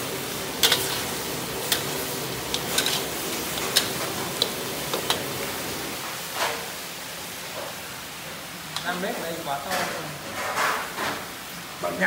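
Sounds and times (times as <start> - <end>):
steady hiss: 0.0 - 12.0
spatula clinking and scraping wok: 0.2 - 5.7.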